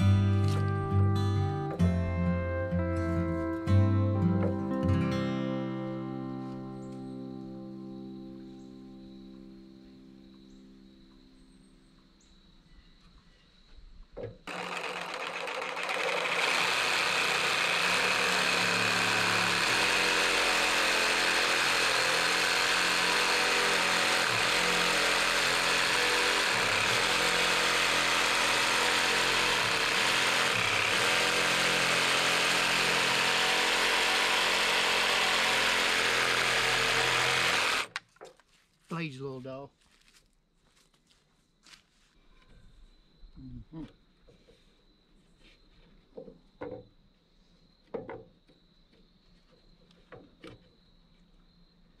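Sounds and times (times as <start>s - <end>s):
power tool motor running: 14.5s - 38.0s.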